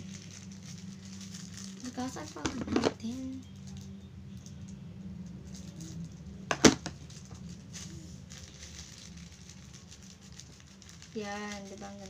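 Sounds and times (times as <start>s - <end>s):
plastic crinkling: 0.0s - 12.0s.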